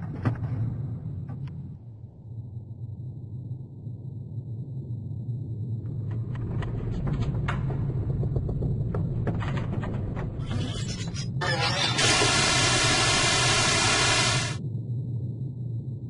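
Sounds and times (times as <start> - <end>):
low rumble: 0.0 - 10.7
short burst of hiss: 11.9 - 14.6.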